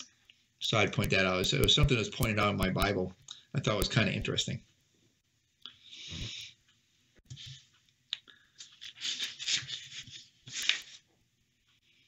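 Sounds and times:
sharp clicks: 1.0s - 3.0s
thin pages rustling: 8.6s - 11.1s.

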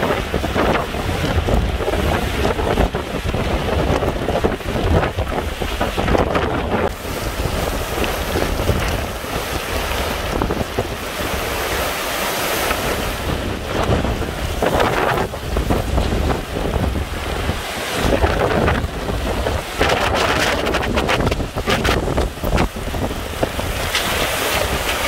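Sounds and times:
strong wind buffeting microphone: 0.0s - 25.0s.

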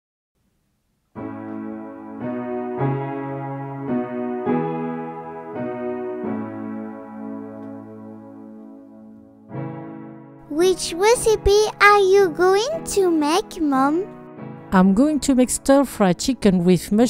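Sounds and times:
soft piano chords: 1.1s - 17.0s.

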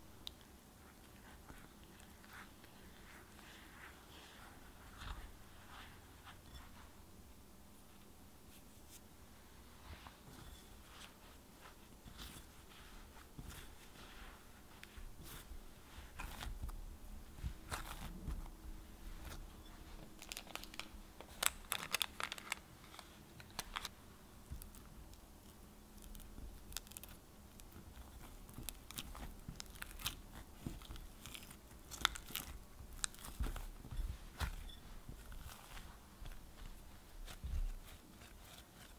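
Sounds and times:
hands kneading dough: 0.0s - 38.9s.

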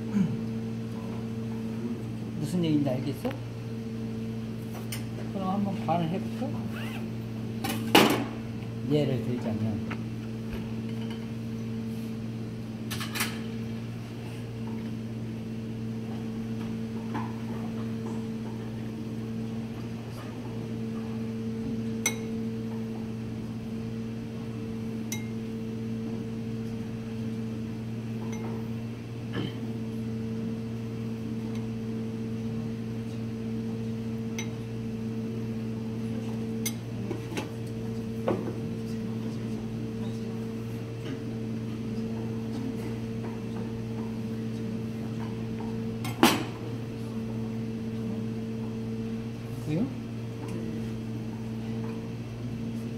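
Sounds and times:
electrical hum: 0.0s - 52.9s.

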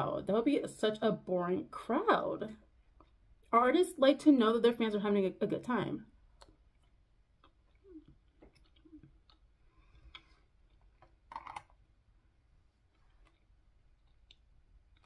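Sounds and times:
wet chewing: 2.6s - 3.6s, 6.2s - 11.8s, 12.6s - 15.0s.

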